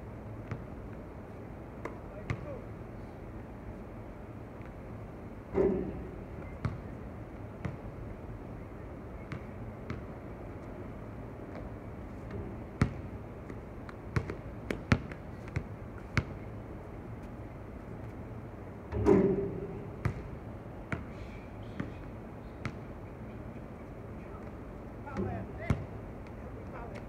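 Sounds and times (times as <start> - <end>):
basketball bouncing on hard court: 6.6 - 6.9, 9.3 - 10.1, 12.8 - 13.1, 14.2 - 16.4, 20.0 - 20.3, 25.2 - 25.9.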